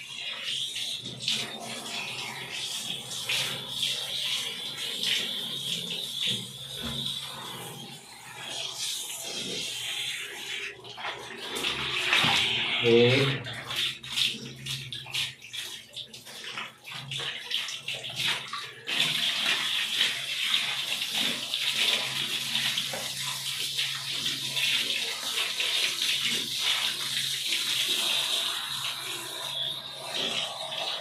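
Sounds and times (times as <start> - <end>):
shower spray on wet fur: 0.0 - 31.0.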